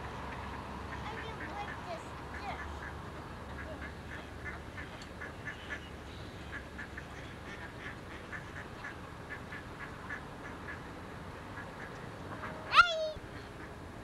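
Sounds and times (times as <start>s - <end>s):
ducks quacking: 0.0s - 13.8s.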